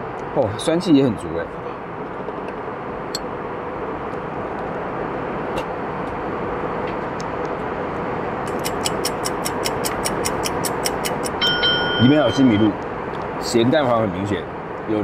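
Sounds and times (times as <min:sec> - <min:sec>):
airliner cabin hum: 0:11.4 - 0:13.0.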